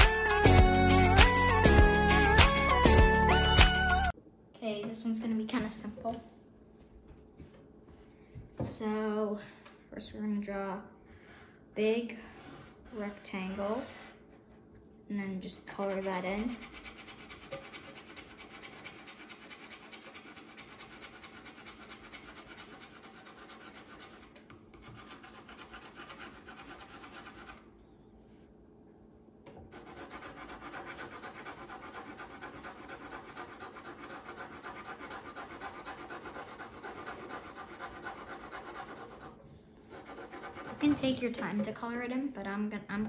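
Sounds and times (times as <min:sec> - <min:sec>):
pencil scratching on paper: 0:15.6 - 0:27.6, 0:29.7 - 0:41.2.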